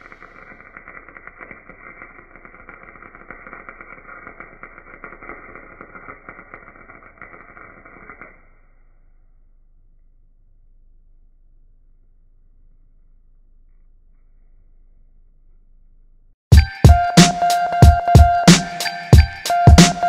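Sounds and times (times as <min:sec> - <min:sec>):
spatter pops: 0:00.0 - 0:08.4
welder arc crackling: 0:00.0 - 0:09.5.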